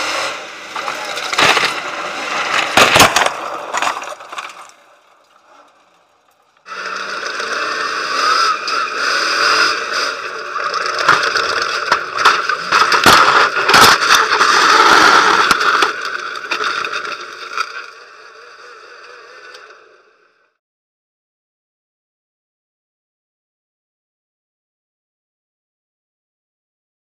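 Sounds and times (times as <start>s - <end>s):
heavy crashes and scraping metal: 0.2s - 6.5s, 10.5s - 17.7s
truck engine running hard: 6.7s - 20.0s.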